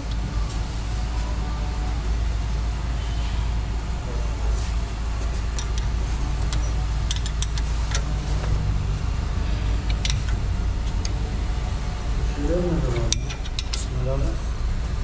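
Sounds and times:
steady low hum: 0.0 - 15.0
metal clicks and clinks: 6.5 - 8.1, 9.8 - 10.4, 13.0 - 13.9.

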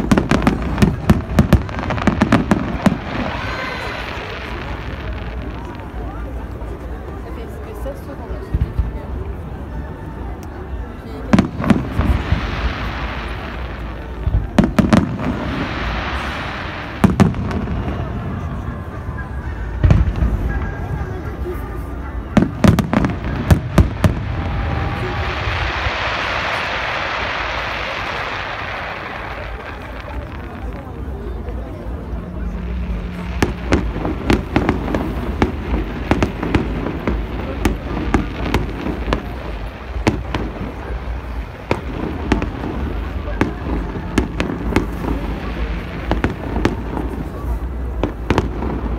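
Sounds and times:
fireworks bangs: 0.0 - 7.4, 11.1 - 48.9
steady hiss: 23.1 - 48.9.

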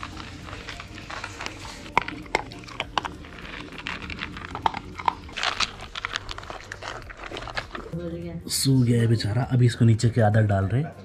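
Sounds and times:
puppy crunching dry kibble: 0.0 - 8.0.

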